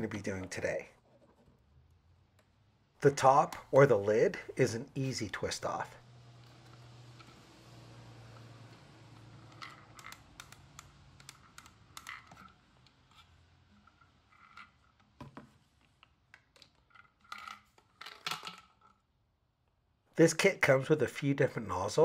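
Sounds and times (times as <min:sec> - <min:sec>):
plastic clicks and scrapes: 0:09.1 - 0:19.0.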